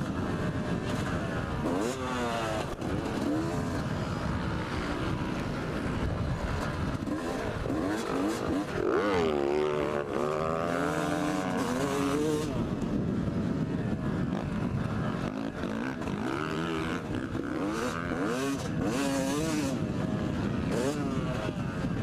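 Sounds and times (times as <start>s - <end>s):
motorcycle engine revving: 0.0s - 22.0s
wind on microphone: 10.9s - 22.0s.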